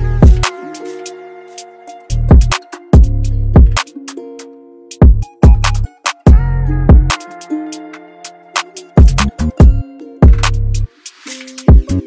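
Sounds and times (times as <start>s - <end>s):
deep bass hits: 2.3s - 3.8s.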